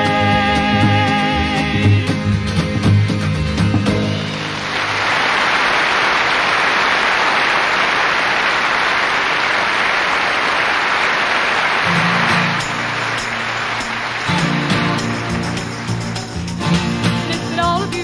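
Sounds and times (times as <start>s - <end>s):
double bass: 0.0s - 4.6s
acoustic guitars: 0.0s - 5.9s, 11.2s - 18.0s
audience applauding: 3.9s - 18.0s.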